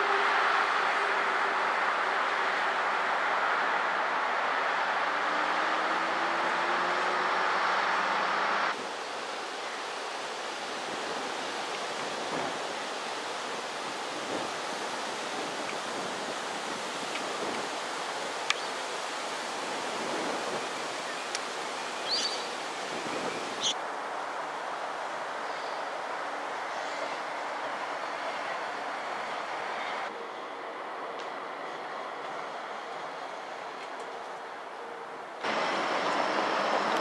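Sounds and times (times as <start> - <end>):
bird chirps: 22.0 - 22.5
tram running hum: 28.2 - 37.0
outdoor rushing ambience: 35.4 - 37.0.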